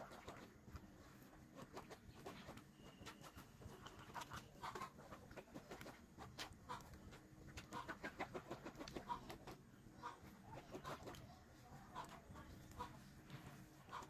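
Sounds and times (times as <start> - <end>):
hens clucking softly: 3.3 - 14.0.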